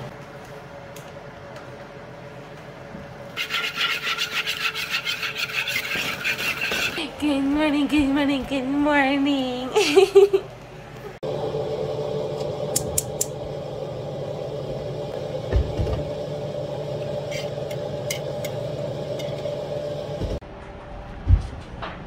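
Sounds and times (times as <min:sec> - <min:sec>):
steady hum: 0:06.2 - 0:22.0.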